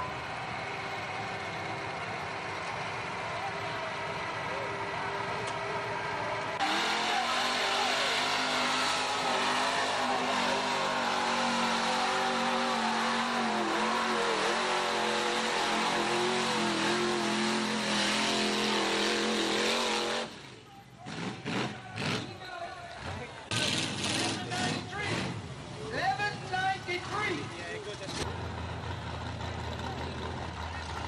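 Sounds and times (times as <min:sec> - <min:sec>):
truck engine revving hard: 0:06.5 - 0:20.5, 0:21.1 - 0:22.4, 0:23.0 - 0:25.6.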